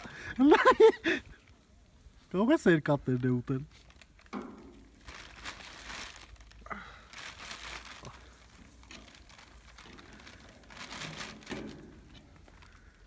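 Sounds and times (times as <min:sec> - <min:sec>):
plastic bag crinkling: 0:03.1 - 0:13.0.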